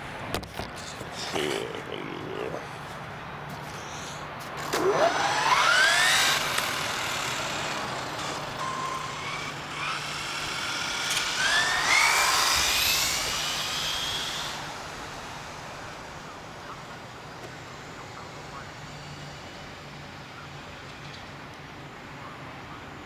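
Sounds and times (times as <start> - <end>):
electric motor whining: 4.6 - 16.2.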